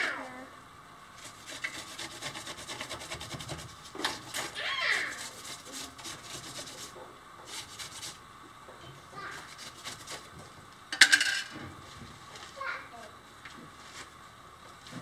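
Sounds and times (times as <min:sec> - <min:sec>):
trowel scraping concrete block: 0:01.2 - 0:08.2.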